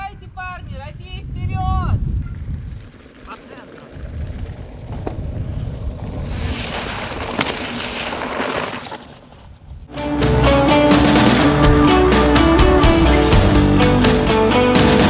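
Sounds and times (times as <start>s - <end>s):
wind rumbling on microphone: 0.0s - 8.6s
bike tyres splashing through water: 6.2s - 9.3s
guitar rock music: 9.9s - 15.0s.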